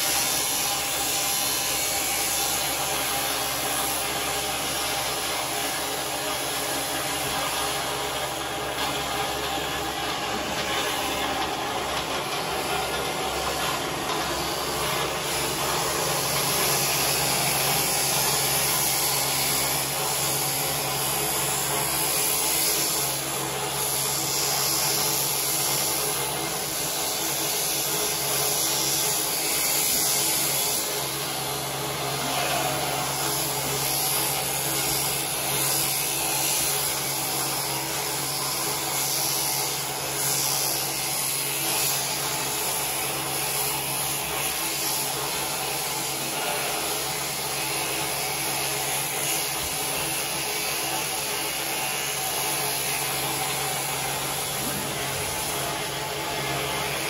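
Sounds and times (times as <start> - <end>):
electric shears humming: 0.0 - 57.0.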